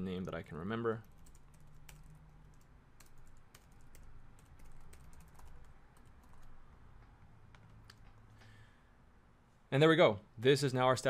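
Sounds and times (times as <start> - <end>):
typing on computer keyboard: 1.0 - 6.6.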